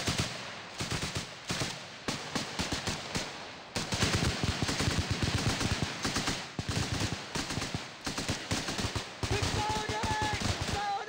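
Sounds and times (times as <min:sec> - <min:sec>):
rapid rifle gunfire: 0:00.0 - 0:11.0.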